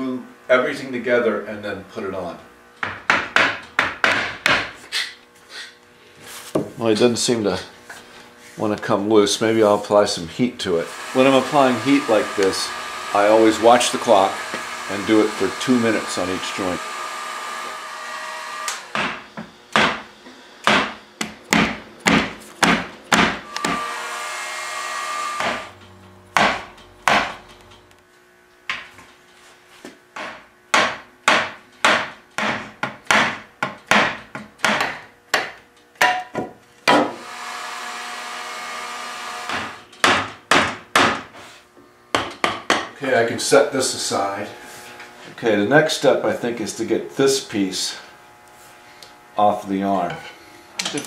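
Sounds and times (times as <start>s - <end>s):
mallet knocking on wood: 2.8s - 4.8s, 30.2s - 37.2s
heat gun blowing: 10.7s - 19.4s, 23.4s - 25.9s, 37.1s - 39.9s, 43.6s - 45.4s, 46.5s - 51.0s.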